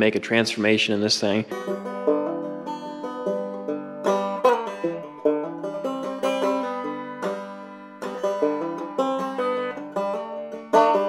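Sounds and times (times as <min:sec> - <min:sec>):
bluegrass banjo tune: 0:00.0 - 0:11.0.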